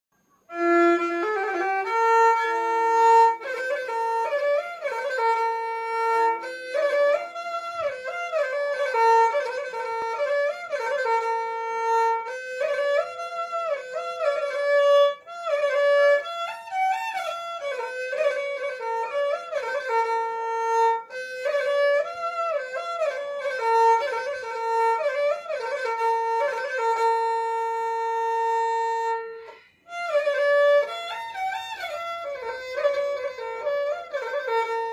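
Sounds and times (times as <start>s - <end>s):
violin melody with sliding notes: 0.5s - 34.9s.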